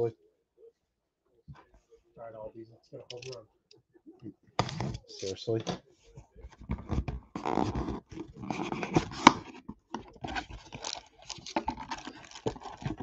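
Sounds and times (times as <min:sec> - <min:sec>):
hands rummaging in cardboard box: 0:06.6 - 0:13.0
packaging scraping and rustling: 0:06.8 - 0:13.0.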